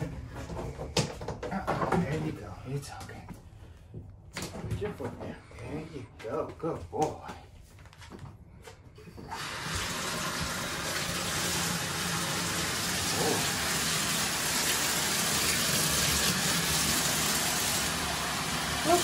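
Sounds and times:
water running into bathtub: 0:09.2 - 0:19.0.

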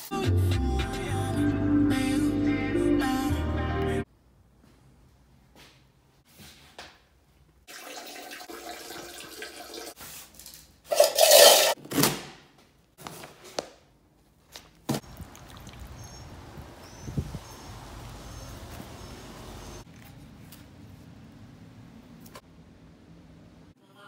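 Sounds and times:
toilet flushing: 0:07.7 - 0:10.0.

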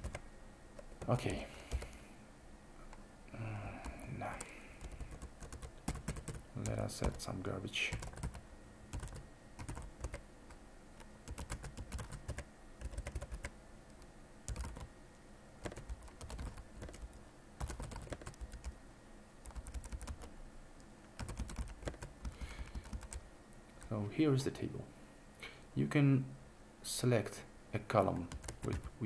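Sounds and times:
computer keyboard typing: 0:00.0 - 0:00.2, 0:00.8 - 0:02.0, 0:03.8 - 0:07.3, 0:07.9 - 0:10.6, 0:11.3 - 0:14.9, 0:15.6 - 0:18.7, 0:19.4 - 0:20.3, 0:21.2 - 0:23.2, 0:28.3 - 0:29.0.

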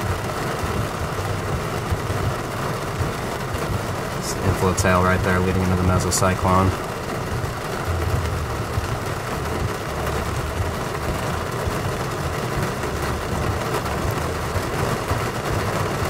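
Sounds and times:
car engine idling: 0:00.0 - 0:16.0
rain on car: 0:00.0 - 0:16.0.

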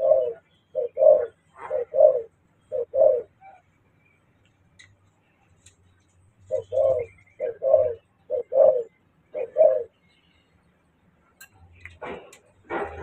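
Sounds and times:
dove cooing: 0:00.0 - 0:03.6, 0:06.4 - 0:10.1.

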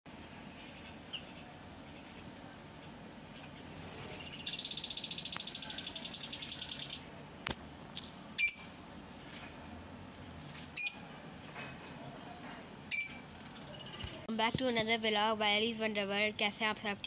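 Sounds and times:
budgerigar sharp chirps: 0:08.4 - 0:08.8, 0:12.9 - 0:13.3.

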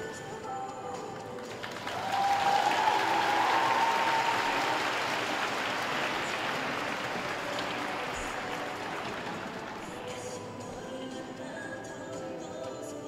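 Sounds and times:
audience applauding: 0:01.4 - 0:10.3.

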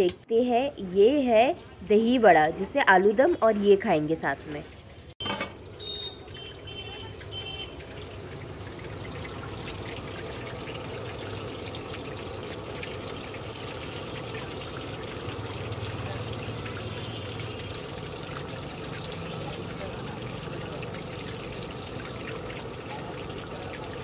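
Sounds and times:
food deep-frying in hot oil: 0:00.0 - 0:24.0.

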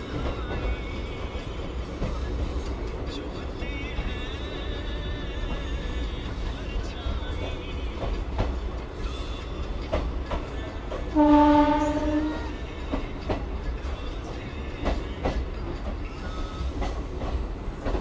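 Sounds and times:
freight train rumble: 0:00.0 - 0:18.0
wheels clacking over rail joints: 0:06.4 - 0:18.0
locomotive horn: 0:11.1 - 0:12.6.

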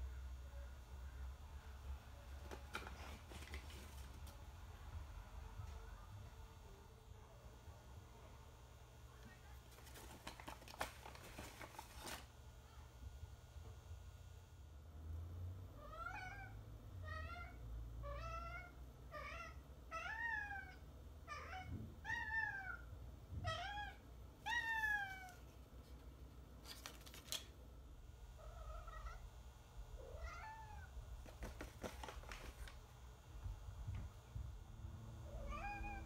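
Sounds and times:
paper rustling: 0:02.4 - 0:04.4, 0:09.6 - 0:12.3, 0:26.0 - 0:27.5, 0:31.2 - 0:32.8
cat meowing: 0:30.0 - 0:30.9, 0:35.3 - 0:36.0.

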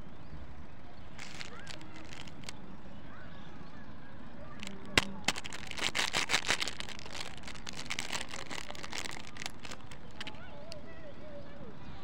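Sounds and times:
plastic wrapper crinkling: 0:01.2 - 0:02.5, 0:04.6 - 0:10.5.

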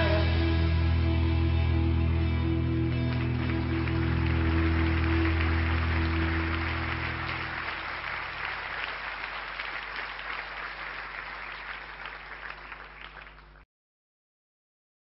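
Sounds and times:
audience applauding: 0:02.8 - 0:13.6.

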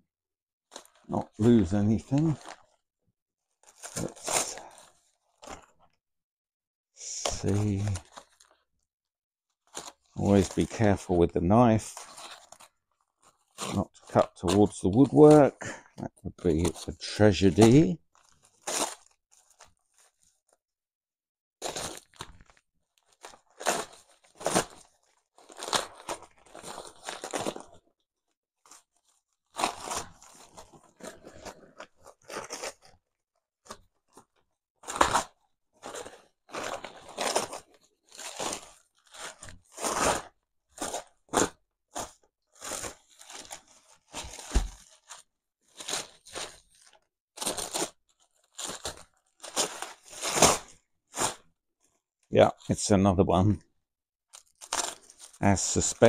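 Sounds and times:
wrapping paper crinkling: 0:07.2 - 0:08.8, 0:16.5 - 0:20.6, 0:21.6 - 0:27.9, 0:28.6 - 0:51.5, 0:54.3 - 0:56.0.

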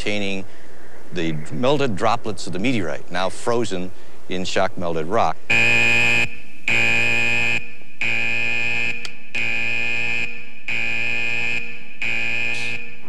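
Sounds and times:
electronic buzzer: 0:05.5 - 0:13.0.

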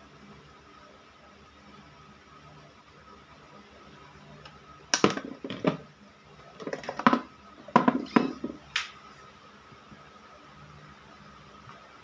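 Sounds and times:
hand tools knocking on workbench: 0:07.8 - 0:08.6.

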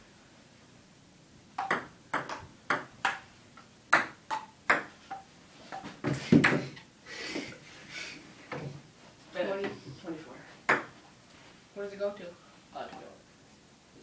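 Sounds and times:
table tennis ball ticking: 0:01.6 - 0:03.2, 0:03.9 - 0:05.3.

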